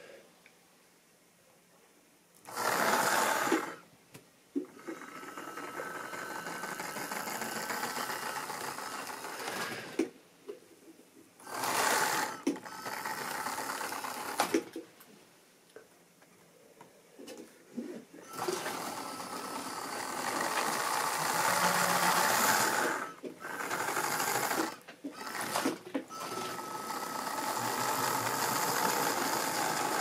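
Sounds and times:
model train motor whirring: 0:02.5 - 0:03.8, 0:04.8 - 0:10.0, 0:11.4 - 0:14.6, 0:18.2 - 0:30.0.

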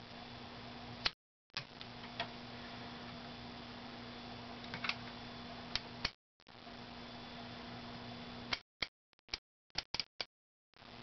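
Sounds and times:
low hum and hiss: 0:00.0 - 0:08.6.

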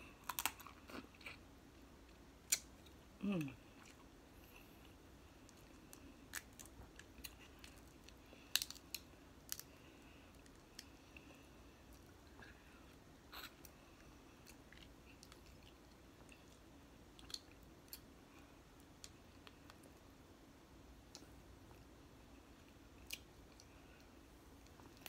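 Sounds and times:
soft chewing: 0:00.0 - 0:20.1, 0:21.0 - 0:25.0
shellfish shell cracking: 0:08.5 - 0:09.7.

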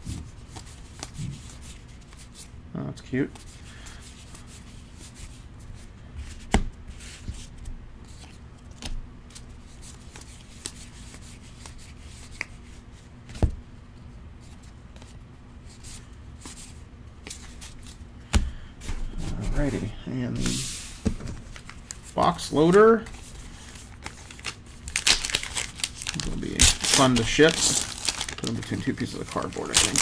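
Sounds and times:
cards sliding and rubbing: 0:06.2 - 0:13.4, 0:18.8 - 0:30.0.

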